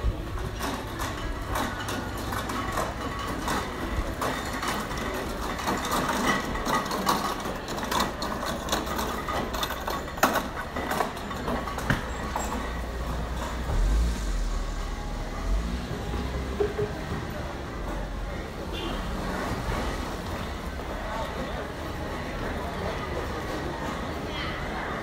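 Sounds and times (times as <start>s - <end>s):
low hum: 12.6s - 18.2s.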